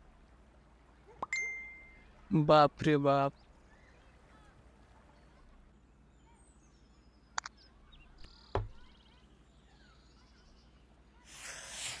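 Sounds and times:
faint distant bird chirps: 0.0 - 12.0.

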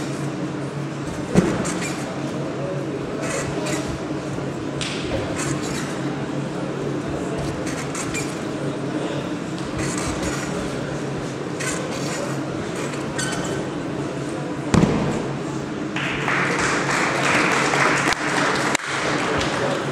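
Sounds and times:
hall hum: 0.0 - 19.9
heavy thud on mat: 14.7 - 15.3
applause: 16.0 - 19.8.

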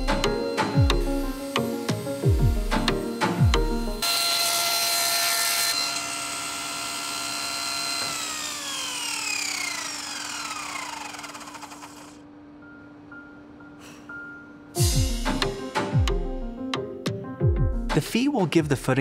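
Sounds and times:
saw blade whine: 0.0 - 12.2
table saw cutting wood: 0.0 - 12.2.

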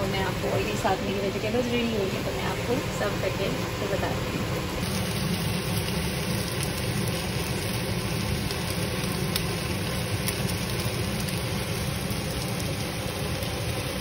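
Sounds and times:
low hum: 0.0 - 14.0
chicken sizzling in a pan: 4.8 - 14.0.

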